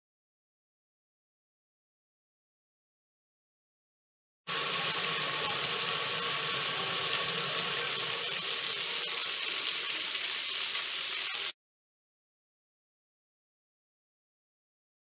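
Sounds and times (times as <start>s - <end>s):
bacon sizzling in a frying pan: 4.5s - 11.6s.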